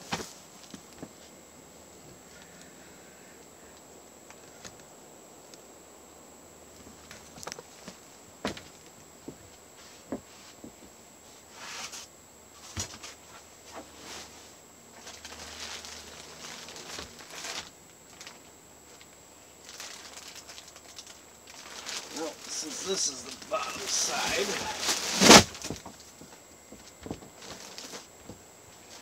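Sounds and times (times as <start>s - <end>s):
plastic wrapping rustling: 15.0s - 29.0s.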